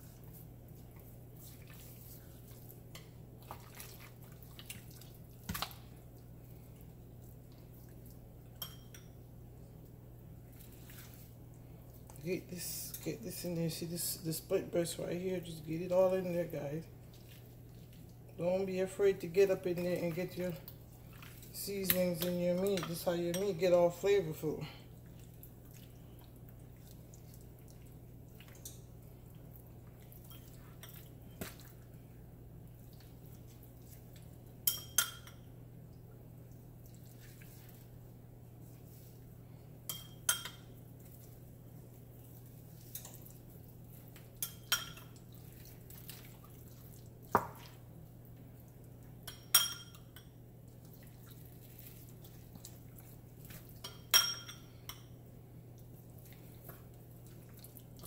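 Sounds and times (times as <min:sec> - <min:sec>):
low steady hum: 0:00.0 - 0:58.0
metal spoon clinking glass bowl: 0:08.6 - 0:09.2, 0:34.6 - 0:35.4, 0:49.2 - 0:50.3, 0:53.8 - 0:55.1.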